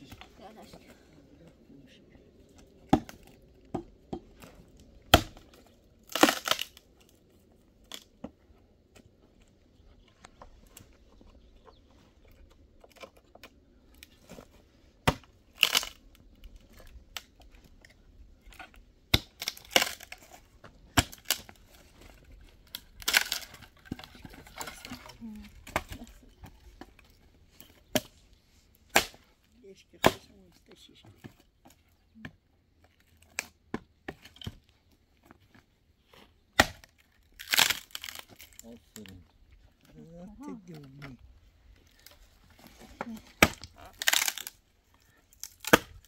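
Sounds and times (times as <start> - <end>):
dry wood snapping: 2.5 - 9.5, 10.2 - 28.2, 28.8 - 29.3, 31.2 - 40.0, 40.7 - 46.0
twigs splintering crunch: 4.3 - 8.3, 10.2 - 28.2, 35.5 - 39.9, 40.8 - 46.0.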